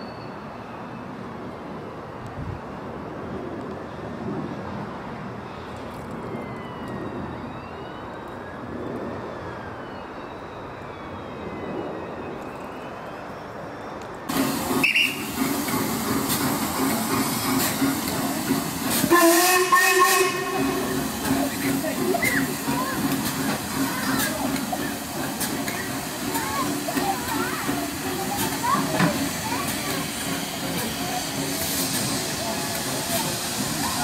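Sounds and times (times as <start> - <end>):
loud steam hissing: 14.3 - 34.0
train carriages rumbling: 14.3 - 34.0
steam whistle: 14.8 - 15.3, 19.0 - 21.0.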